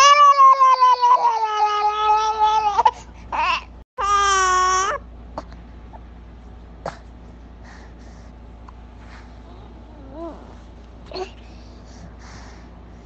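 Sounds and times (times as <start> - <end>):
baby making held vocal sounds: 9.4 - 11.5.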